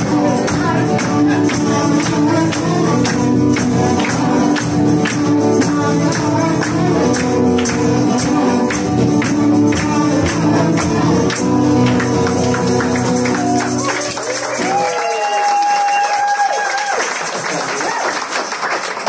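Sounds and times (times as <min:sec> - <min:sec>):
strummed acoustic guitar: 0:00.0 - 0:14.8
person singing: 0:00.0 - 0:15.3.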